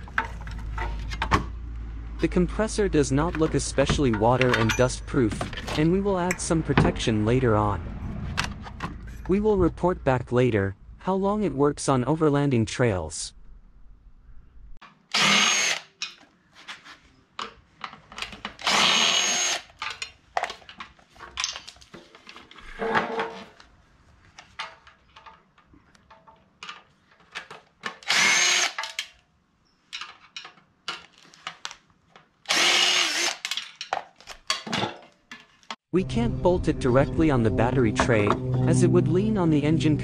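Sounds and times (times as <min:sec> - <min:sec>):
cordless driver driving screws: 0:15.1 - 0:16.2, 0:18.2 - 0:19.8, 0:27.9 - 0:29.1, 0:32.5 - 0:33.6
metallic clicks of handled parts: 0:19.7 - 0:22.4, 0:29.9 - 0:32.3.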